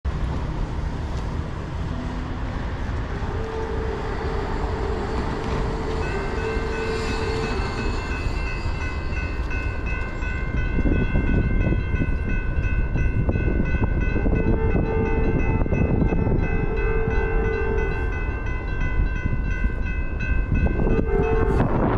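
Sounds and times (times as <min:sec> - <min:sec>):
railroad crossing bell ringing: 0:02.0 - 0:21.9
distant train horn blasts: 0:03.1 - 0:10.0, 0:14.2 - 0:19.3, 0:20.5 - 0:21.9.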